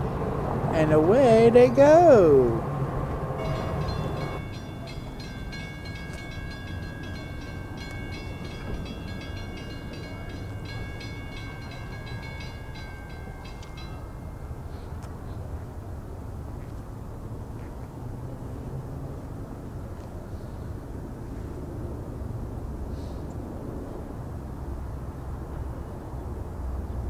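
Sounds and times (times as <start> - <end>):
railroad crossing bell ringing: 3.4 - 15.3.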